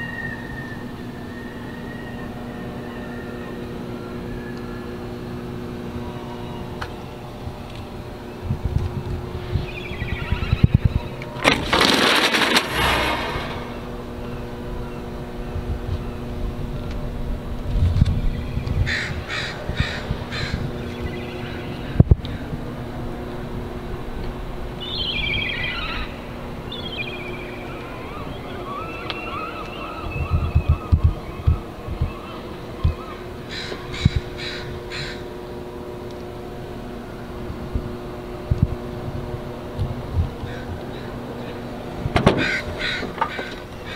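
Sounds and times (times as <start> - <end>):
steady low hum: 0.0 - 43.9
metal roll-up shutter rattling open: 11.4 - 14.0.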